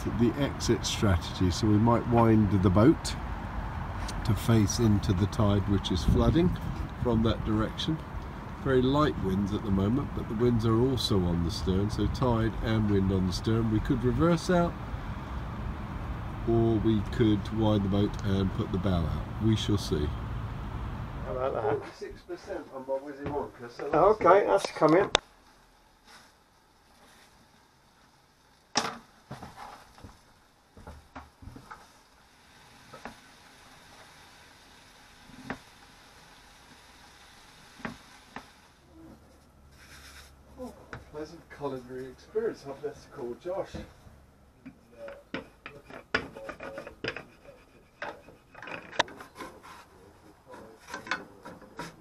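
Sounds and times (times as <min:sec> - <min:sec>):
rolling pin rubbing on dough: 0:45.2 - 0:48.6, 0:49.2 - 0:52.0.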